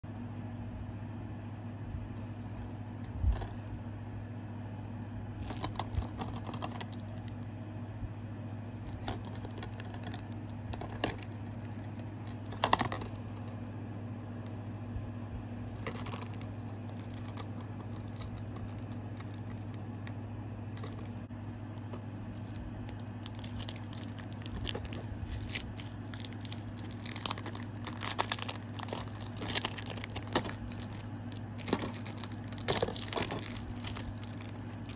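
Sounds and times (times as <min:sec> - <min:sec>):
steady low hum: 0:00.0 - 0:34.9
plastic packaging crinkling and tearing: 0:03.1 - 0:03.7, 0:05.4 - 0:07.4, 0:08.9 - 0:13.5, 0:15.7 - 0:19.8, 0:20.7 - 0:34.9.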